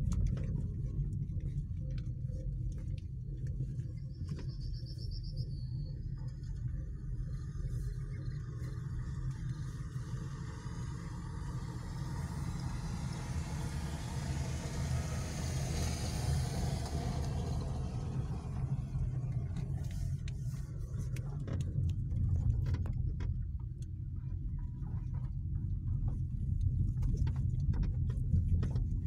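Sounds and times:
car rumbling over gravel: 6.4s - 29.0s.

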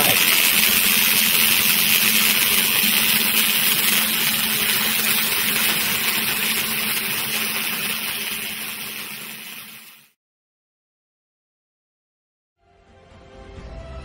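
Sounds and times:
welding torch hissing: 0.0s - 10.2s.

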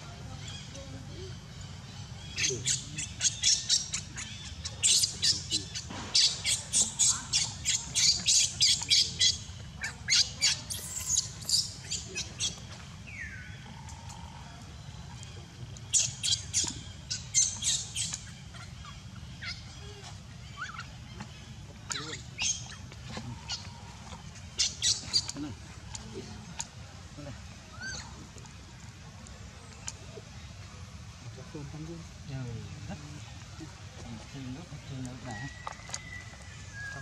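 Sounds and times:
baby monkey screaming: 2.3s - 12.6s, 20.6s - 20.9s, 27.7s - 28.2s.

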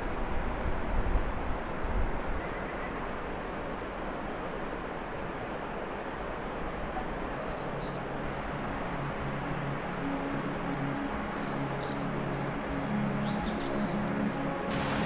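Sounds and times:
outdoor rushing hiss: 14.7s - 15.0s.

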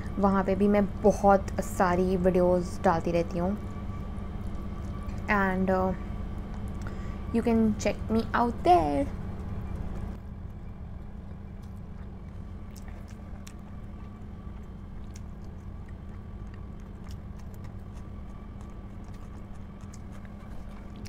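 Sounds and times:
steady low hum: 0.0s - 21.0s
close-up chewing: 1.6s - 21.0s.

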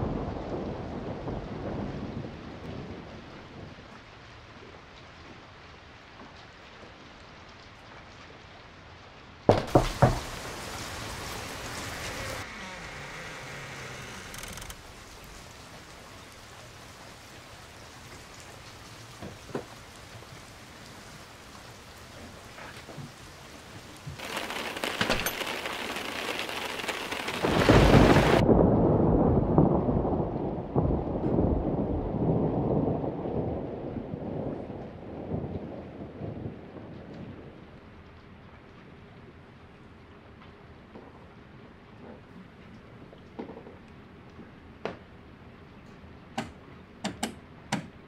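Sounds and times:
thunder rumbling: 0.0s - 3.8s, 24.2s - 37.8s
steady rain hiss: 0.0s - 29.2s, 32.2s - 48.0s
heavy rain hissing: 9.7s - 28.4s.

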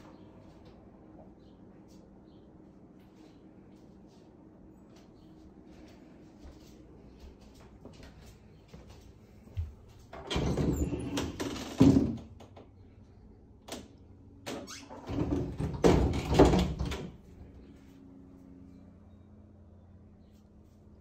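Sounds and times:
door rubbing and knocking: 14.6s - 17.2s.

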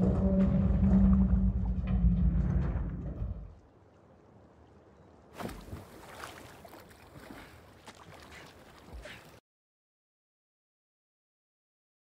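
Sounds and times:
underwater ambience: 0.0s - 5.1s
river water lapping and splashing: 3.6s - 9.4s.

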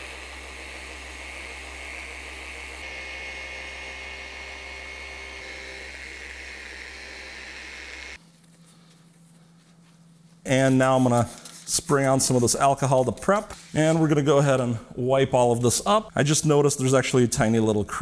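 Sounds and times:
polisher whining: 0.0s - 8.2s.

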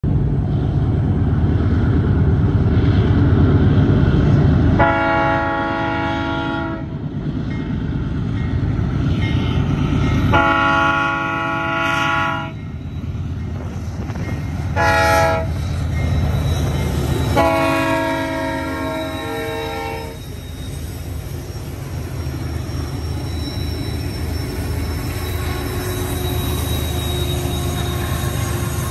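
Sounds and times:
low train rumble: 0.0s - 28.9s
train air horn blasts: 4.8s - 6.9s, 10.3s - 12.6s, 14.8s - 15.6s, 17.3s - 20.4s.

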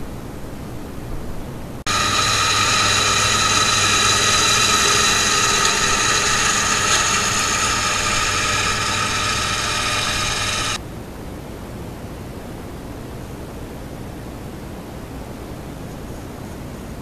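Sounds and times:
tractor engine and machinery whine: 1.9s - 10.8s.

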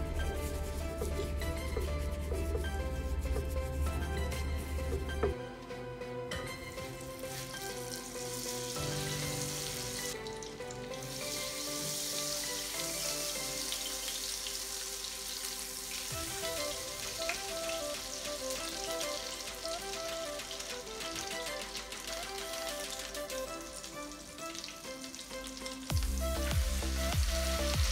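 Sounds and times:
background music: 0.0s - 27.9s
steak sizzling in frying pan: 7.2s - 20.9s.

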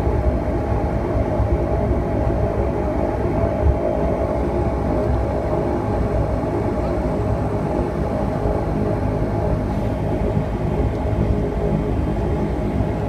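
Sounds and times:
turboprop engine droning: 0.0s - 13.0s.

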